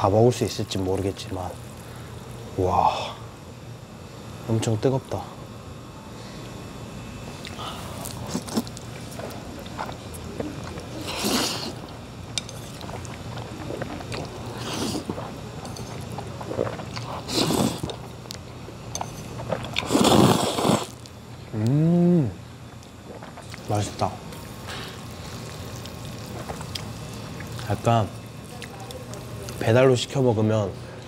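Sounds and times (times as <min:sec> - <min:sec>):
person chewing: 0:07.4 - 0:18.4, 0:19.0 - 0:21.0, 0:23.0 - 0:23.7, 0:24.8 - 0:27.7
person slurping noodles: 0:10.9 - 0:11.8, 0:12.8 - 0:15.3, 0:16.4 - 0:18.0, 0:19.5 - 0:21.0.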